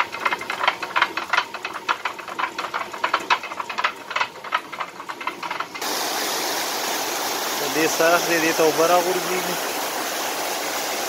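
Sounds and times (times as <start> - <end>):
wooden chute knocking on millstone: 0.0 - 6.0.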